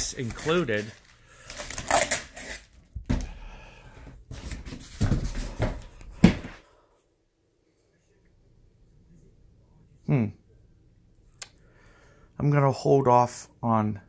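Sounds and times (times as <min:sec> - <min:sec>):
cardboard box rustling and scraping: 0:04.3 - 0:06.5.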